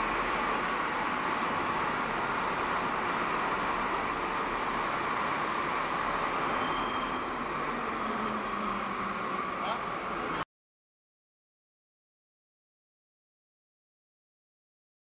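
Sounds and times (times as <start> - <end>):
metro train rushing: 0.0 - 10.4
high whistling tones: 6.5 - 10.4.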